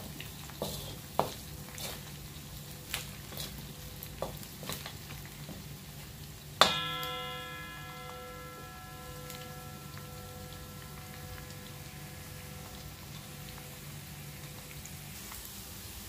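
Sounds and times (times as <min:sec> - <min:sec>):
wooden spatula scraping a wok: 0:00.0 - 0:02.3, 0:02.9 - 0:05.7
meat sizzling in a wok: 0:00.0 - 0:16.0
wok ringing: 0:06.6 - 0:15.3.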